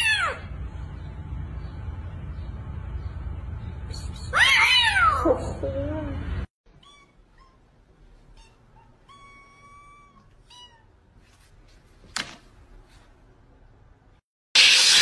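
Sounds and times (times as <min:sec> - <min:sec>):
steady low rumble: 0:00.5 - 0:04.4.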